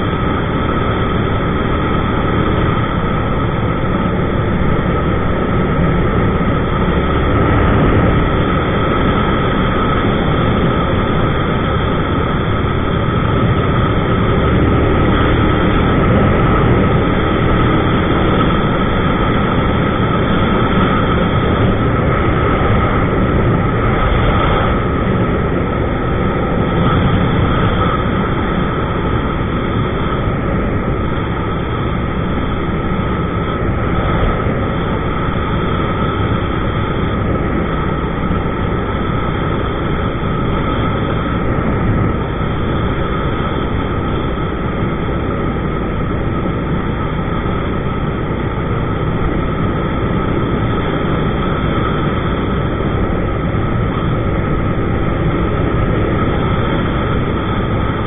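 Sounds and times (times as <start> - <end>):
motorcycle engine cruising: 0.0 - 58.0
wind and road rush: 0.0 - 58.0.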